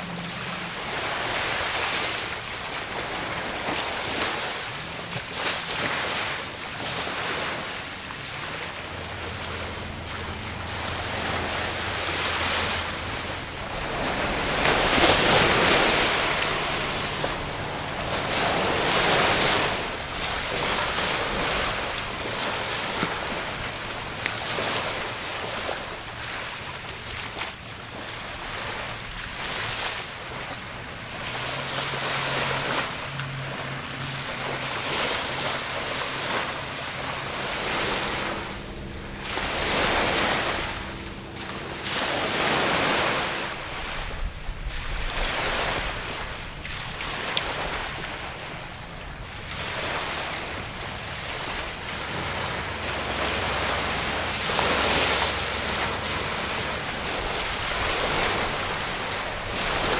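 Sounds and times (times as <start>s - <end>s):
low boat engine hum: 0.0s - 59.9s
water lapping and splashing: 0.0s - 59.9s
wind rushing over microphone: 33.7s - 59.9s.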